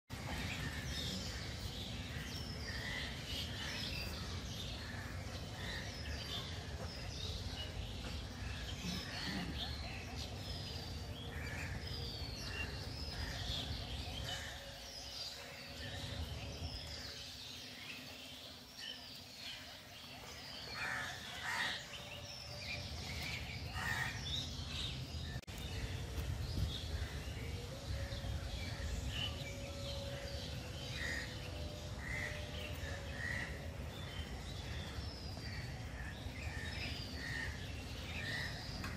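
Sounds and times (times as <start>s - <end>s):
birds chirping and calling: 0.1s - 38.9s.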